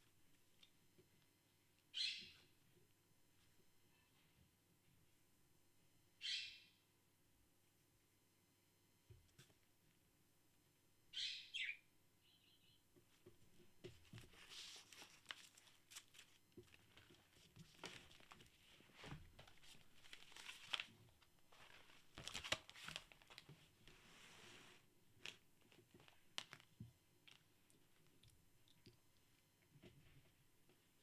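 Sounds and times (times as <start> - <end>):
paper pages rustling: 14.0 - 24.0, 25.2 - 27.4.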